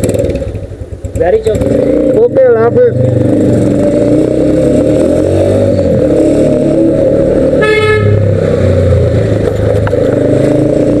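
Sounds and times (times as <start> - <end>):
motorcycle engine rumble: 0.0 - 11.0
vehicle horn beeping: 7.6 - 8.2.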